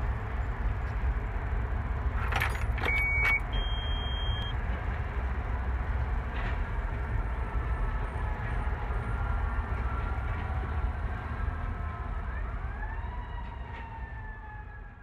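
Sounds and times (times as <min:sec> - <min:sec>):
diesel engine rumbling: 0:00.0 - 0:12.0
short electronic beeps: 0:02.8 - 0:04.6.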